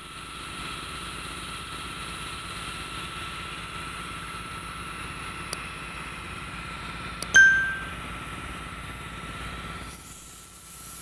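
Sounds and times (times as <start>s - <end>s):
high whine: 7.4s - 8.1s.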